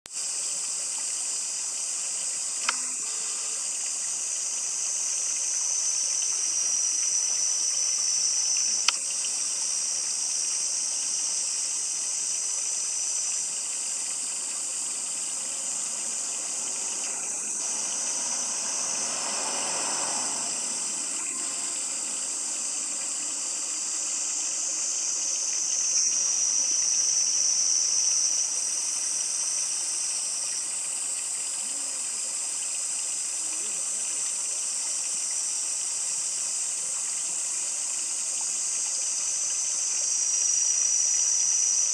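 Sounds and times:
high-pitched insect chorus: 0.1 - 41.9
faint clicks: 2.6 - 3.2, 8.6 - 9.3.

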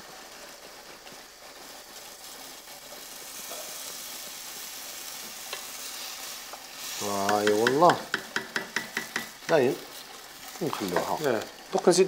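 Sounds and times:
hot water pouring and sizzling: 0.0 - 12.0
wooden spoon stirring: 6.5 - 11.8.

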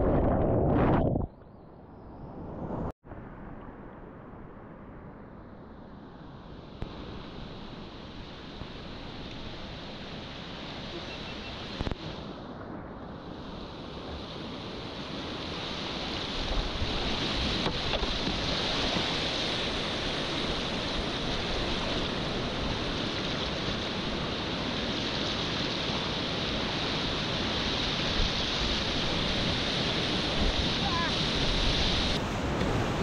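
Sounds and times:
rushing whitewater: 7.0 - 12.2, 14.0 - 33.0.

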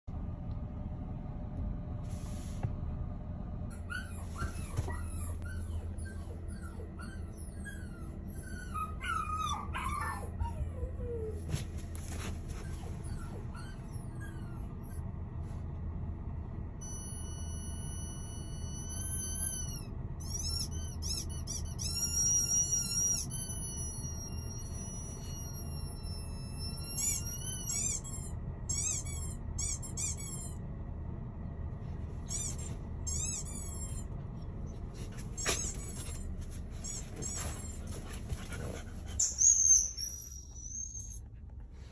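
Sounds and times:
low cabin hum: 0.0 - 41.9
squeaky whimper-like cries: 3.7 - 11.6, 16.8 - 30.6, 35.2 - 38.1, 39.1 - 41.3.

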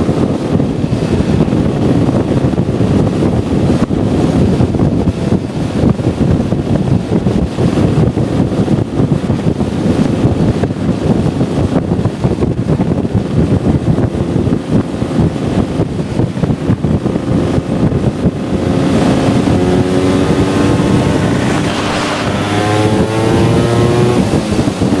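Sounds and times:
wind buffeting microphone: 0.0 - 25.0
scooter engine accelerating: 17.2 - 25.0.

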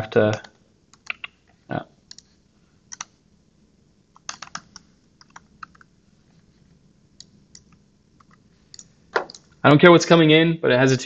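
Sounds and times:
typing on a computer keyboard: 0.3 - 1.4, 2.9 - 3.2, 4.2 - 5.9, 7.2 - 9.5.

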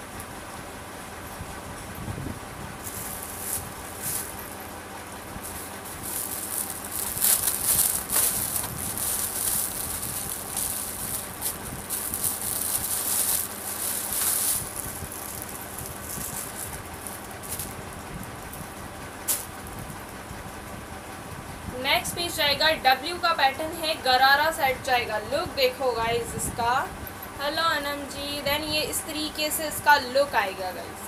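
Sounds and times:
fabric rustling: 2.8 - 4.7, 5.4 - 17.8.

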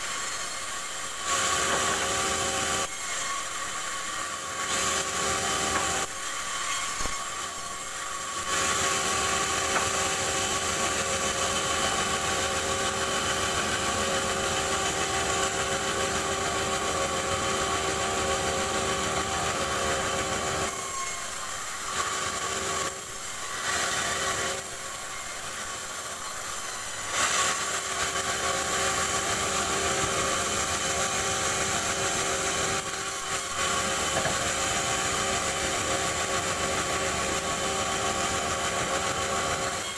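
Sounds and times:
sawmill machine hum: 0.0 - 39.9
saw blade hissing through wood: 23.0 - 38.7.

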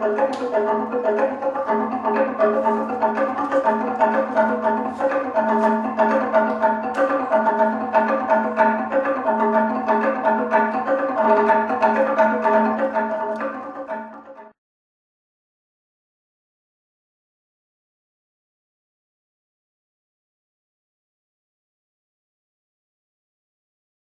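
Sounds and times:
wooden plank beaten with sticks: 0.0 - 14.3.

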